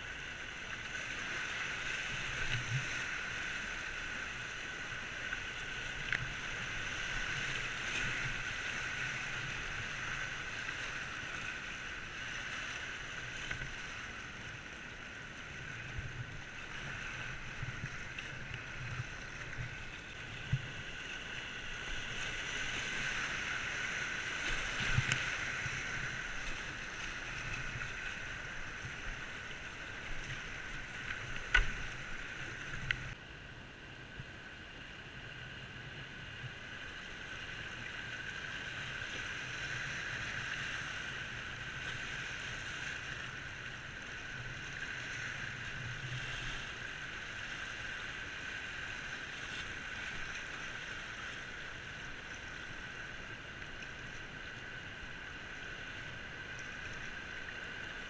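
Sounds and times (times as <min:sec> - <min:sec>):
paddle splashes: 0:00.1 - 0:33.2.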